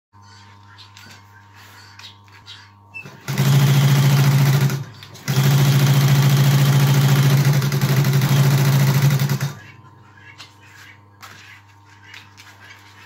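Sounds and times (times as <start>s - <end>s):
industrial sewing machine stitching: 3.0s - 9.6s.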